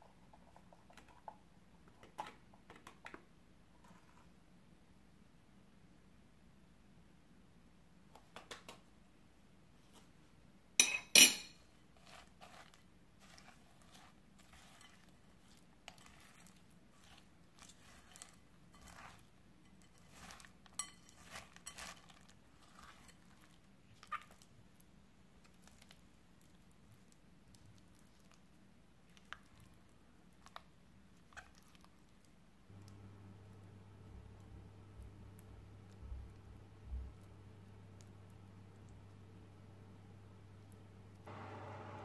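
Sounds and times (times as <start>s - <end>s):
metal spoon knocking glass bowl: 10.8s - 11.6s
spatula scraping creamy filling: 10.8s - 32.4s.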